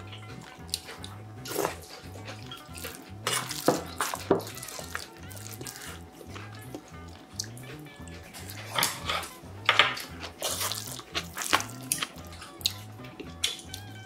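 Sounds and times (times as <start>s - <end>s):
background music with steady beat: 0.0s - 14.0s
spoon mixing rice in metal bowl: 2.8s - 5.0s.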